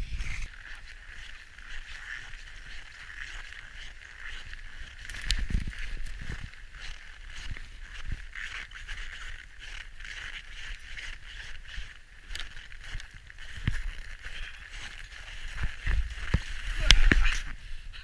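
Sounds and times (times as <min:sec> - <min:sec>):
footsteps in deep snow: 0:00.0 - 0:17.7.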